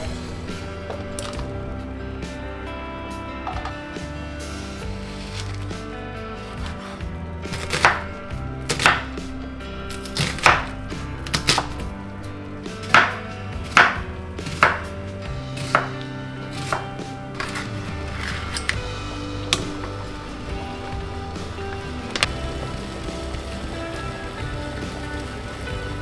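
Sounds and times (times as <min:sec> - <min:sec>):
knife slicing onion on board: 0:06.4 - 0:08.1, 0:15.6 - 0:17.7.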